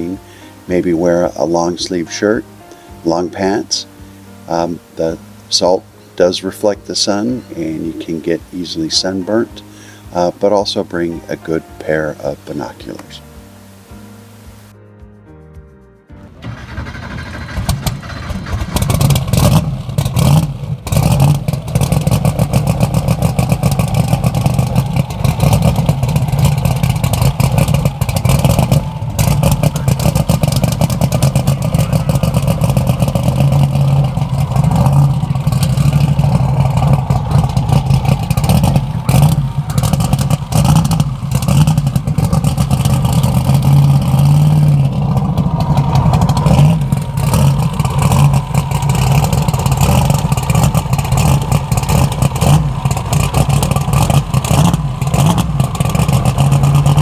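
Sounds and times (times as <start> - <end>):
race car engine droning and rattling: 16.3 - 57.0.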